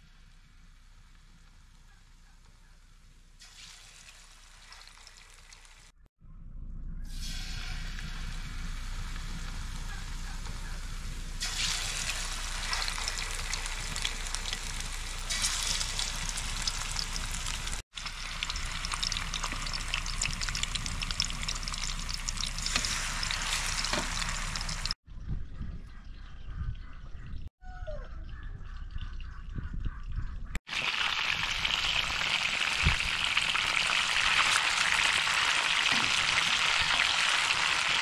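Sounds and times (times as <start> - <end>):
fish sizzling in hot oil: 3.4 - 5.9, 11.4 - 25.0, 30.7 - 38.0.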